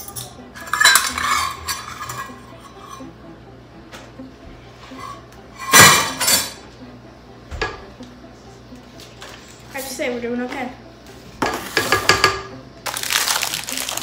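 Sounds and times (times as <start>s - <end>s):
dishes and utensils clattering: 0.0s - 3.2s, 4.8s - 6.7s, 7.5s - 7.9s, 11.4s - 12.5s.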